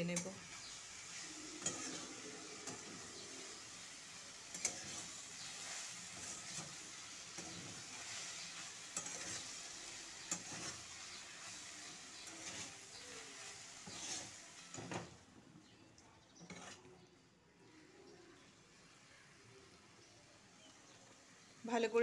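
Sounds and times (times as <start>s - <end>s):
frying sizzle: 0.0s - 22.0s
spatula scraping a metal pan: 0.1s - 15.2s, 16.4s - 17.0s.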